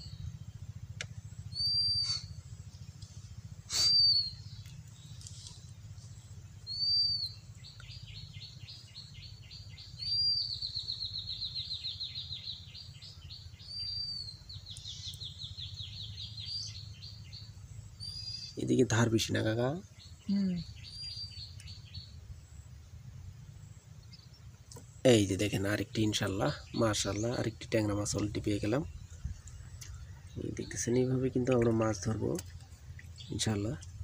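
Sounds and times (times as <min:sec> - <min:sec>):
bird calling with trills: 0:00.0 - 0:34.0
steady low rumble: 0:00.0 - 0:34.0.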